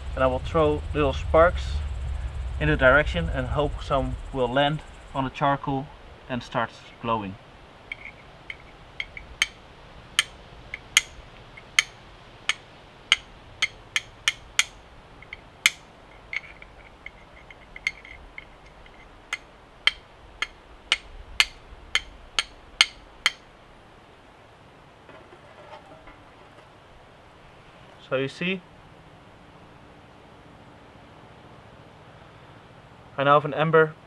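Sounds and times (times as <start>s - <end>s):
flint and steel striking: 7.9s - 23.5s.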